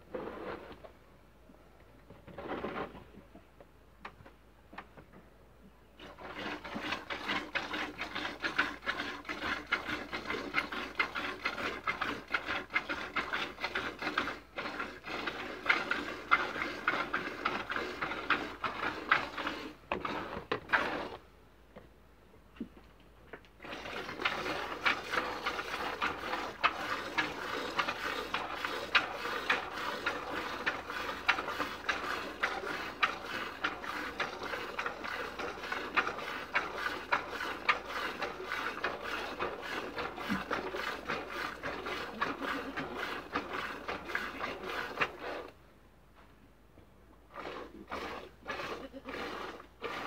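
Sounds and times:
milk squirting into plastic bucket: 0:06.0 - 0:21.2, 0:23.6 - 0:45.6, 0:47.3 - 0:50.0.

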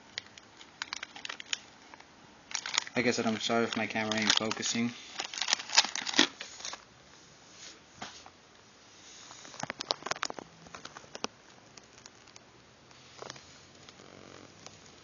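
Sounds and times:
plastic bags crinkling: 0:00.1 - 0:06.8, 0:09.5 - 0:12.4.

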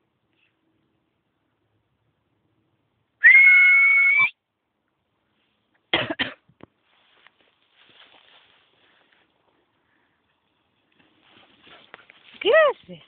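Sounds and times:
high whistle: 0:03.2 - 0:04.4
person coughing: 0:05.9 - 0:06.4.

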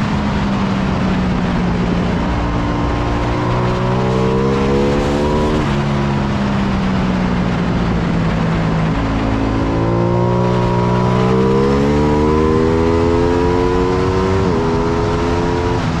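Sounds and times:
motorcycle engine accelerating: 0:00.0 - 0:16.0
wind rush: 0:00.0 - 0:16.0.

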